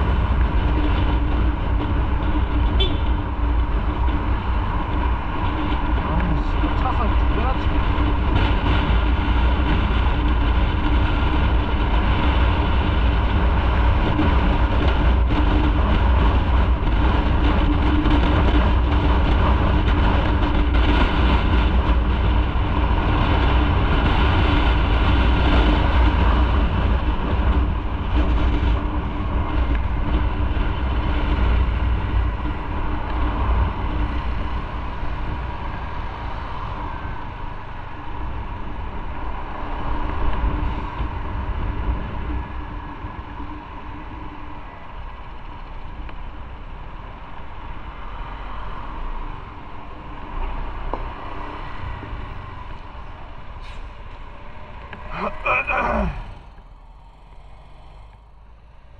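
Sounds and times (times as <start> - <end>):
motorcycle engine running: 0.0 - 35.0, 54.2 - 58.9
road noise: 0.0 - 58.9.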